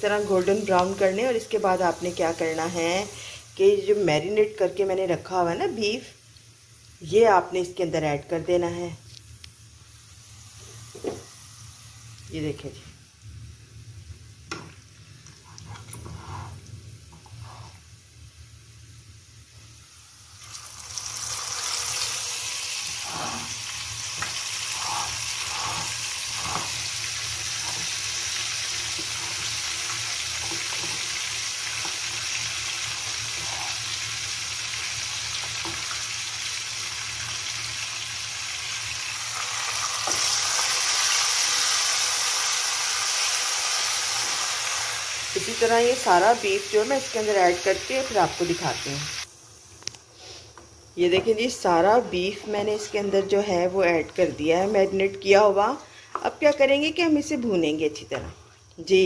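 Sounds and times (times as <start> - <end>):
faint spatula scrapes: 15.4 - 17.9, 22.9 - 23.6, 24.2 - 28.1, 33.3 - 33.9, 50.1 - 50.6, 52.0 - 53.5
meat sizzling in oil: 17.4 - 53.9.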